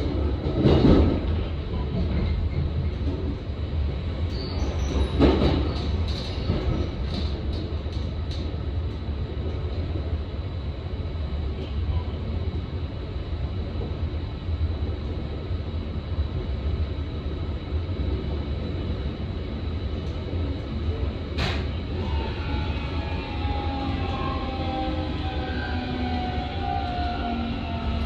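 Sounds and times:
train wheels rumbling: 0.0s - 10.3s, 18.0s - 28.0s.

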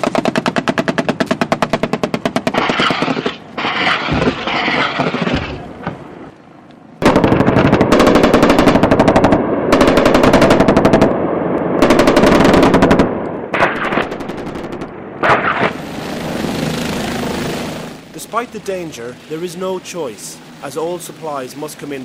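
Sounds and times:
automatic machine-gun fire: 0.0s - 5.4s, 7.0s - 11.2s, 11.8s - 18.0s.

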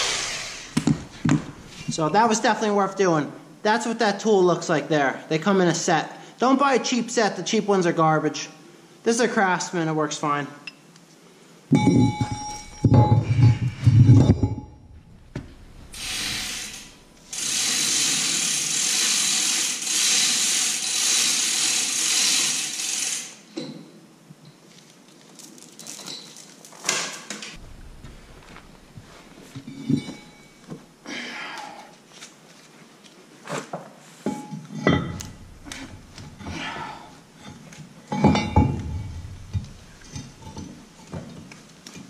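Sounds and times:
steady hiss: 0.0s - 2.5s, 15.0s - 23.5s, 27.6s - 31.1s
metal tools clanking: 11.7s - 16.0s, 27.6s - 30.8s, 34.3s - 41.2s.

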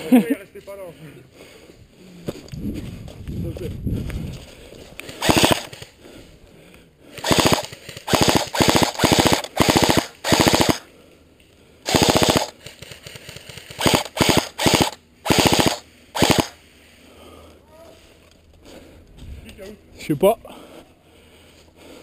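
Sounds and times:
airsoft rifle full-auto bursts: 5.1s - 5.9s, 7.1s - 10.9s, 11.9s - 16.6s.

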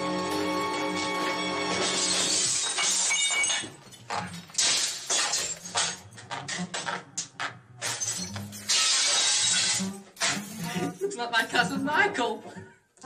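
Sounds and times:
breaking and smashing noises: 0.1s - 11.0s.

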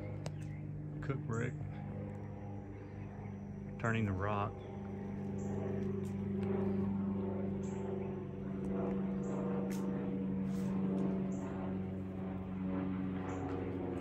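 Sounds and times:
low mechanical hum: 0.0s - 14.0s.

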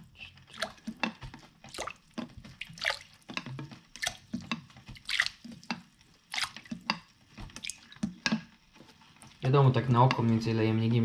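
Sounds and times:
liquid splashing into water: 0.5s - 1.1s, 1.7s - 3.4s, 4.0s - 5.6s, 6.3s - 8.1s.

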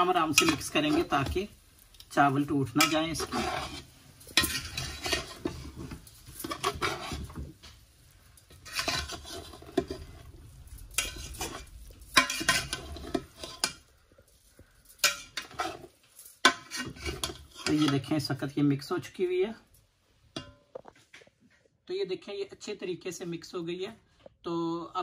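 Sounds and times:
metal spoon scraping a pot: 0.0s - 18.2s.

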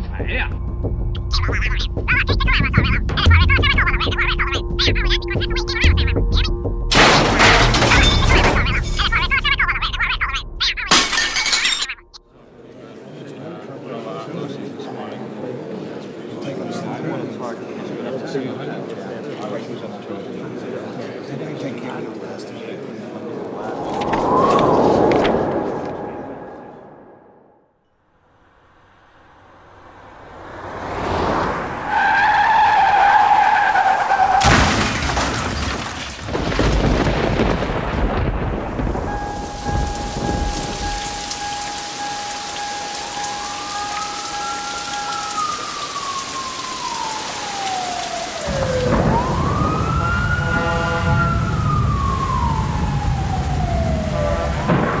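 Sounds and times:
emergency siren wailing: 1.2s - 10.9s, 38.7s - 55.0s
heavy rain: 1.3s - 11.2s, 30.9s - 55.0s
two-note tone: 3.0s - 6.9s, 39.1s - 46.6s
loud crash of noise: 6.9s - 9.6s, 34.4s - 41.8s
thunder rumbling: 36.2s - 55.0s
long steady tone: 39.1s - 48.5s.

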